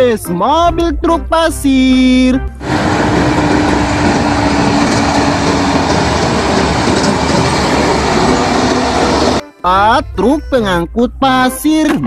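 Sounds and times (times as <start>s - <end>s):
dump truck engines rumbling: 2.6s - 9.4s.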